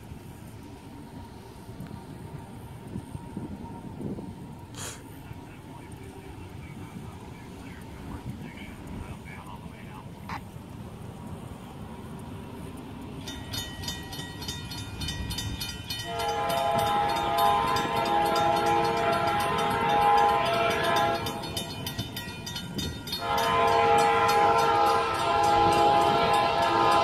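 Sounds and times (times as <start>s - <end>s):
crossing bell dinging: 12.7s - 27.0s
locomotive air horn blasts: 16.0s - 21.8s, 22.8s - 27.0s.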